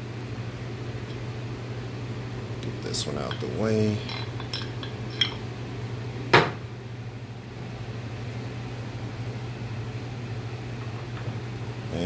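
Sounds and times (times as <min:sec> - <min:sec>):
steady low hum: 0:00.0 - 0:12.0
hard object set down on counter: 0:06.4 - 0:06.6.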